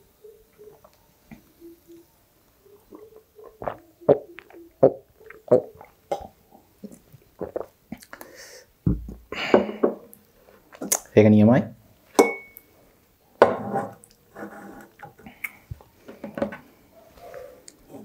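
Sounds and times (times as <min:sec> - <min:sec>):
person gulping a drink: 0:03.0 - 0:08.3
breathy exhale: 0:08.2 - 0:08.7.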